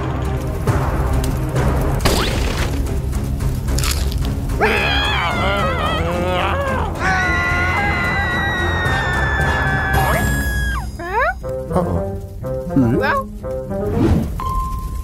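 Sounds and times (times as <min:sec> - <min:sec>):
background music: 0:00.0 - 0:15.0
sharp cracks: 0:01.1 - 0:04.6
cartoon characters wailing: 0:04.6 - 0:11.3.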